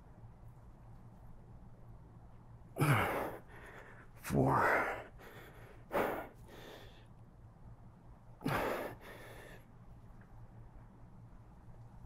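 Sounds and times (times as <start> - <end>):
man breathing hard: 2.8 - 7.2, 8.4 - 9.8.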